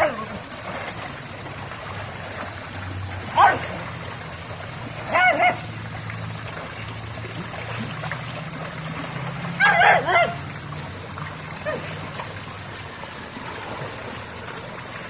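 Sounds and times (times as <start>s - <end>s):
trickling pool water: 0.0s - 15.0s
dog yipping: 5.1s - 5.6s, 9.6s - 10.4s.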